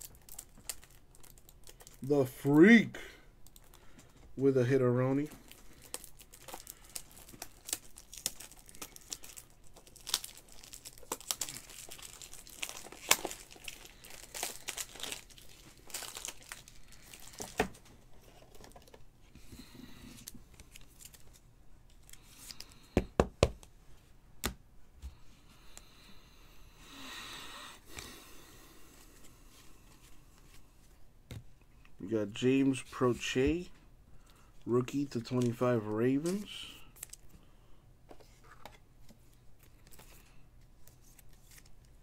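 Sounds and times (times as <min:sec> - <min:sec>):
foil wrappers crinkling and tearing: 0:00.0 - 0:02.1, 0:05.2 - 0:18.9, 0:20.1 - 0:22.8.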